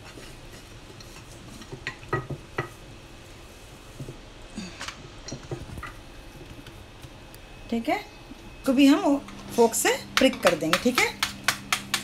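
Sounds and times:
rolling pin tapping on dough: 10.2 - 12.0.

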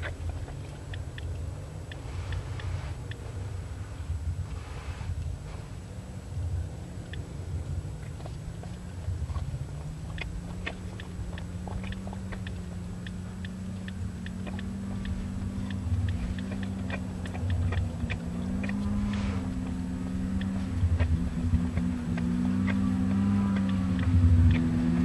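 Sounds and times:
small engine running: 8.0 - 25.0.

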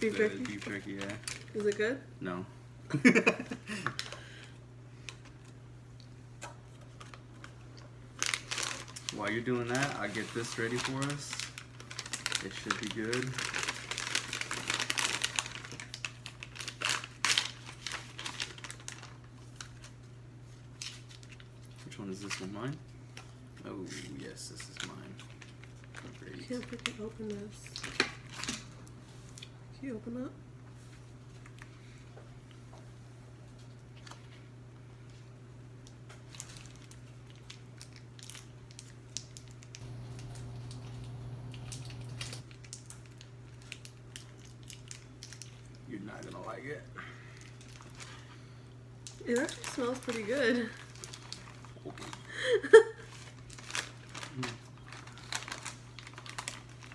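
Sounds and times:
plastic packaging crinkling: 0.0 - 1.9, 6.7 - 23.4, 24.5 - 29.5, 36.1 - 48.4, 49.0 - 56.9
steady low hum: 39.5 - 55.4.

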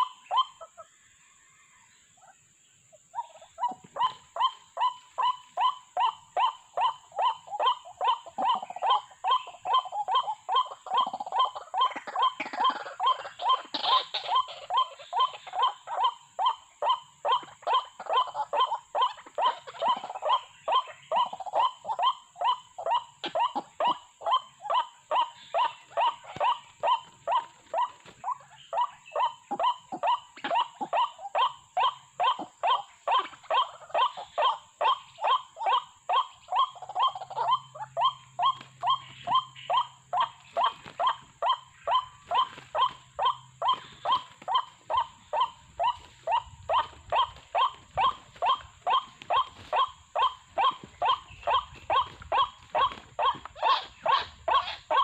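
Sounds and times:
bird calling sharp notes: 31.9 - 55.0.

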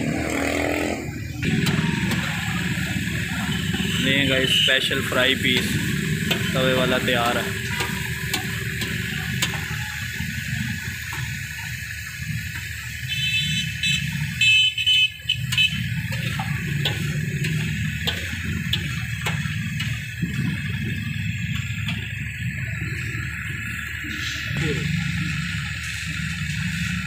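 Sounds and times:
chicken frying on griddle: 1.4 - 24.4
steady low rumble: 15.7 - 27.0.

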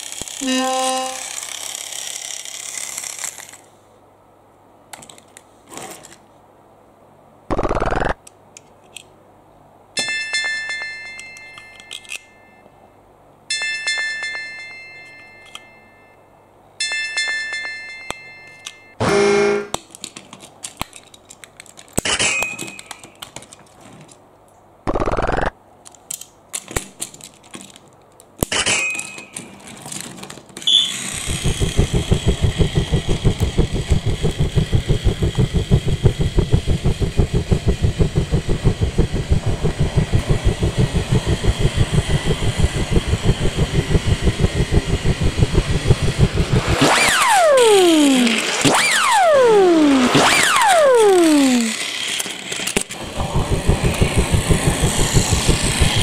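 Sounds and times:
toy train clattering on track: 0.0 - 3.7, 10.0 - 12.4, 13.5 - 15.9, 16.8 - 18.9, 19.8 - 24.2, 25.8 - 31.3, 51.1 - 53.0.

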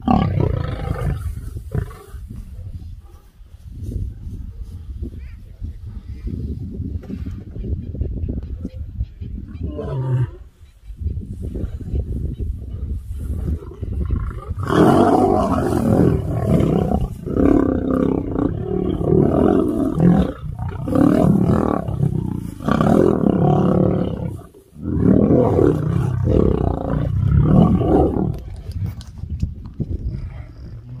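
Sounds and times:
lions roaring and snarling: 0.0 - 2.3, 13.3 - 29.0.

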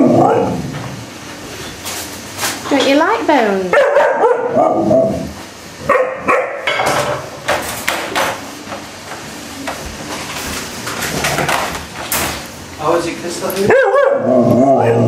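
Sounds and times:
puppy howling calls: 13.7 - 15.0.

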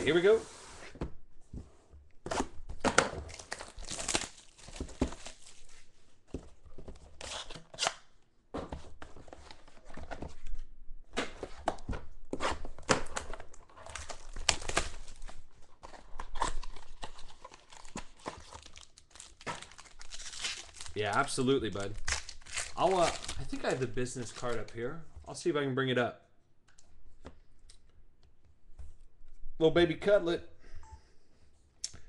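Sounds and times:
packaging tearing and crinkling: 3.3 - 5.7, 12.9 - 24.8.

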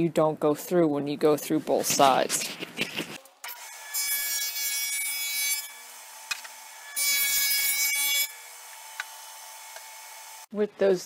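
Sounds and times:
table saw cutting plywood: 3.5 - 10.5.

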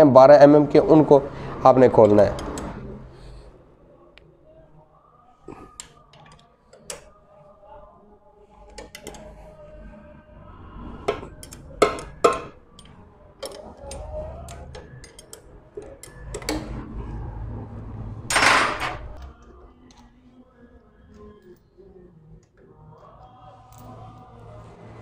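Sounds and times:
sharp metal clanks: 11.1 - 12.6
metal hand tools clinking: 11.1 - 15.4.

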